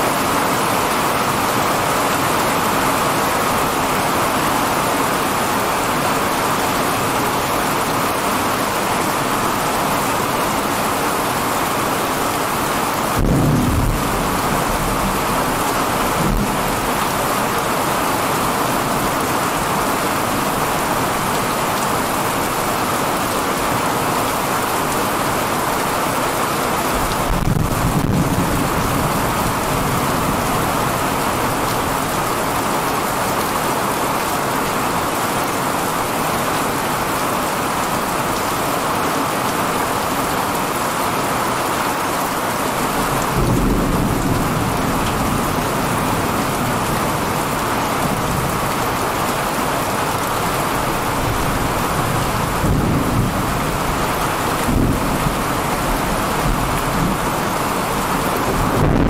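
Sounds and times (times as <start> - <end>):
heavy rain pouring: 0.0 - 59.0
thunder rumbling: 13.1 - 18.0, 27.0 - 32.2, 43.2 - 48.9, 51.1 - 59.0.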